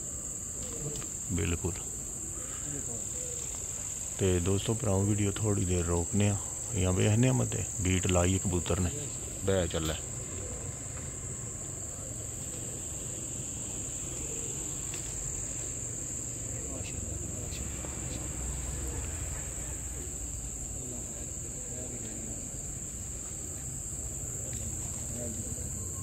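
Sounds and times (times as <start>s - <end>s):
crickets trilling: 0.0s - 26.0s
faint distant voices: 0.0s - 26.0s.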